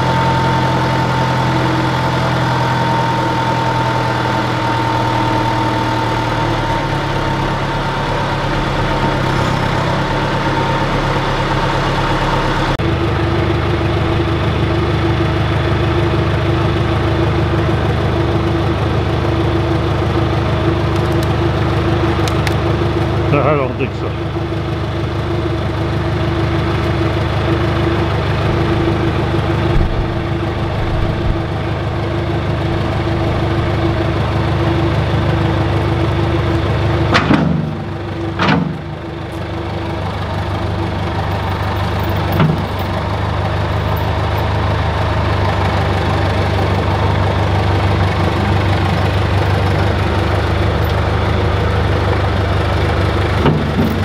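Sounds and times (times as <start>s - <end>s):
backhoe engine idling: 0.0s - 54.0s
sharp clunks: 29.5s - 30.4s, 37.1s - 38.9s, 42.2s - 43.0s.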